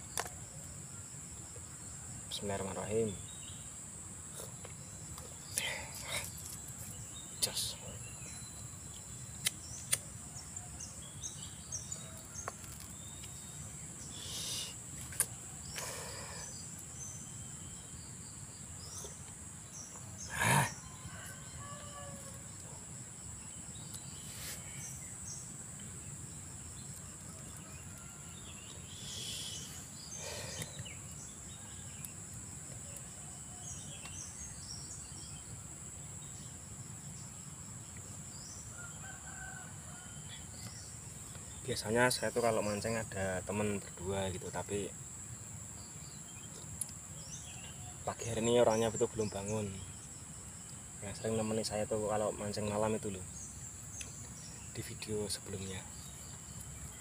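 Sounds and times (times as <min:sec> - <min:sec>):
bird chirps: 0:04.3 - 0:22.8, 0:26.7 - 0:35.6
sharp clicks: 0:09.4 - 0:10.1
high-pitched insect drone: 0:11.2 - 0:25.6, 0:28.2 - 0:31.8.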